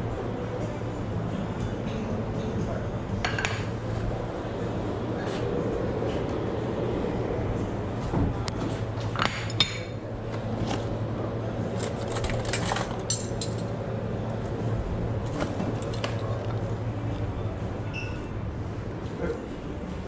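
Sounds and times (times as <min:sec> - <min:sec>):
steady low hum: 0:00.0 - 0:20.0
crockery and cutlery clinking: 0:11.8 - 0:13.8.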